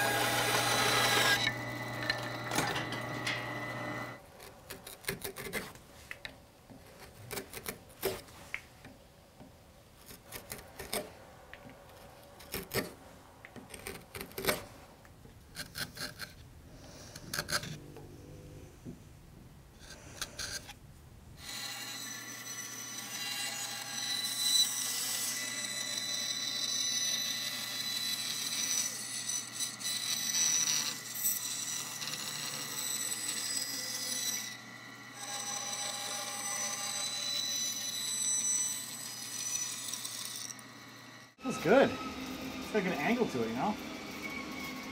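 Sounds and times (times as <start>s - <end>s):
bandsaw whining: 0.0s - 4.2s, 21.4s - 44.9s
carving gouge cutting wood: 0.0s - 5.8s, 6.7s - 8.3s, 10.0s - 11.1s, 11.9s - 13.0s, 13.6s - 14.7s, 15.5s - 17.8s, 19.8s - 20.8s, 21.4s - 40.7s.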